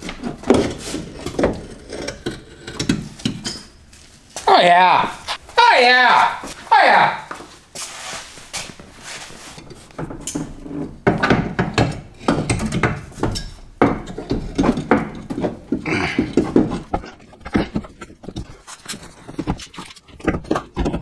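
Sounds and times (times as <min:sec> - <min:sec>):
metal clunks and knocks: 0:09.8 - 0:18.5.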